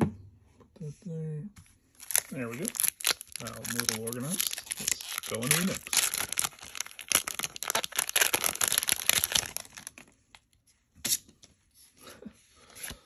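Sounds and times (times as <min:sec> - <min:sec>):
foil wrapper crinkling and tearing: 0:01.9 - 0:10.5.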